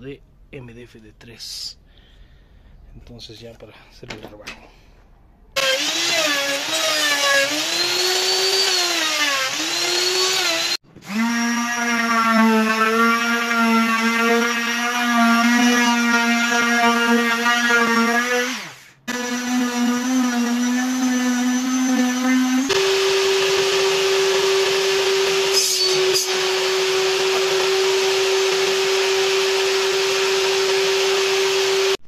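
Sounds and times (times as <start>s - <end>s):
table saw whine: 5.6s - 10.8s
sheet sander running: 5.6s - 32.0s
saw blade cutting wood: 16.8s - 32.0s.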